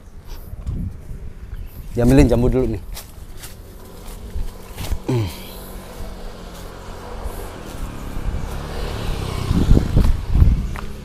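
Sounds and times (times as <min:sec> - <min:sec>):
vehicle passing by: 0:03.1 - 0:11.0.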